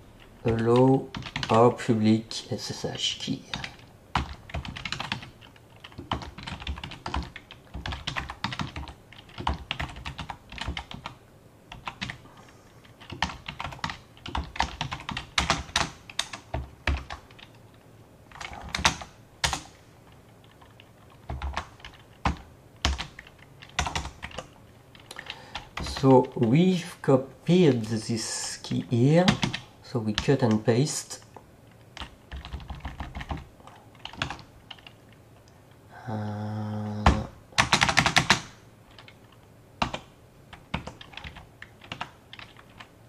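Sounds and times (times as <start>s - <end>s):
typing on keyboard: 0.4s - 1.6s, 3.5s - 12.2s, 12.9s - 17.6s, 18.3s - 26.3s, 29.2s - 30.6s, 32.0s - 35.1s, 37.6s - 42.9s.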